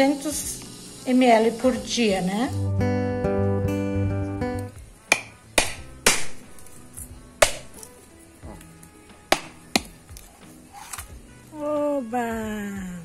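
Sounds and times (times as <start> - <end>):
hammer knocking on coconut: 5.1 - 6.4, 7.4 - 7.8, 9.3 - 10.0.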